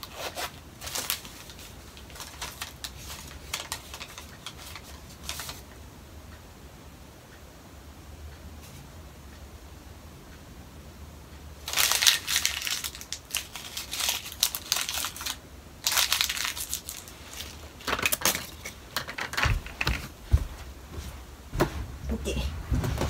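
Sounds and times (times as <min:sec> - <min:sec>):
packet crinkling in hands: 0:00.0 - 0:05.6, 0:11.7 - 0:18.8
low thuds: 0:19.4 - 0:23.0.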